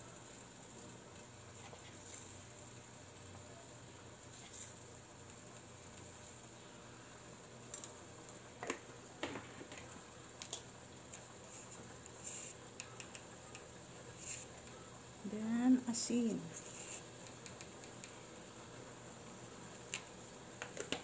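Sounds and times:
gas burner noise: 0.0 - 21.0
light clicks and taps: 12.8 - 13.7, 17.2 - 18.2.

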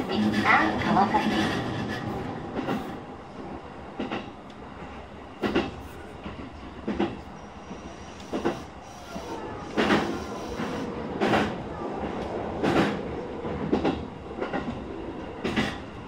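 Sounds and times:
electric train rumbling on track: 0.0 - 16.0
wheels clacking over rail joints: 5.4 - 13.0.

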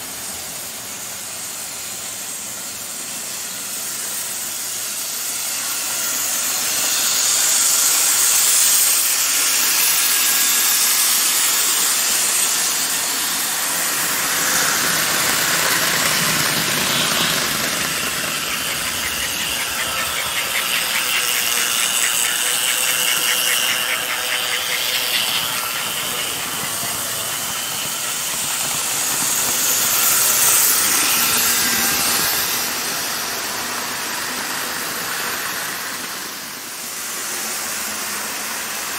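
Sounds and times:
model locomotive motors whirring: 0.0 - 38.9
fast rhythmic clicking: 15.1 - 30.1.

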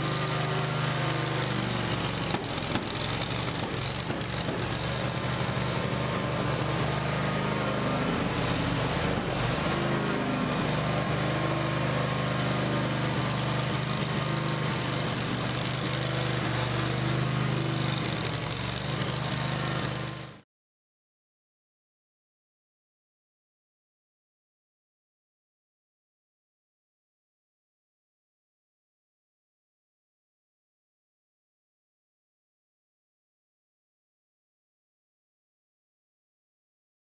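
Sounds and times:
grinding heads whirring: 0.0 - 20.3.

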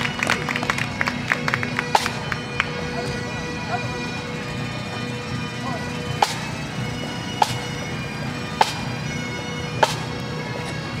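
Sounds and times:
bagpipes drone: 0.0 - 11.0
drum strokes: 1.7 - 3.3, 4.9 - 11.0.

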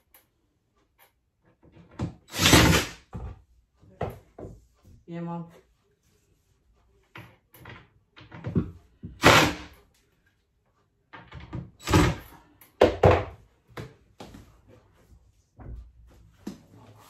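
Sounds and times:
cabinet door knocks and bangs: 1.8 - 3.4, 12.8 - 13.4.

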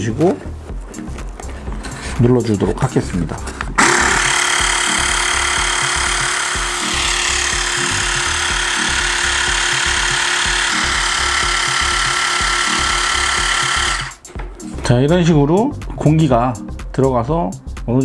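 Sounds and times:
air pump motor running: 3.8 - 14.3.

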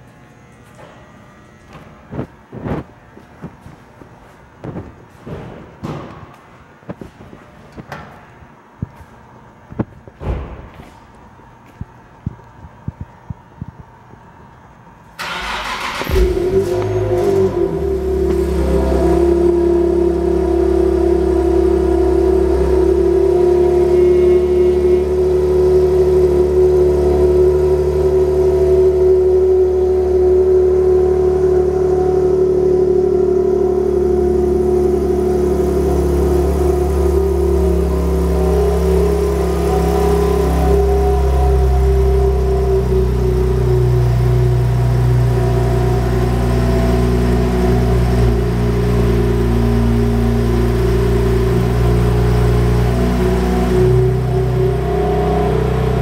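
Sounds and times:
car engine idling raspy: 15.2 - 56.0.

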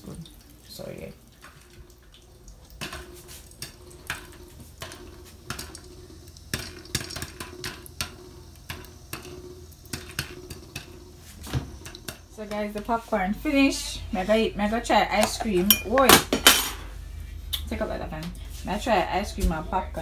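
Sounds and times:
popcorn popping in a pot: 2.5 - 12.9.

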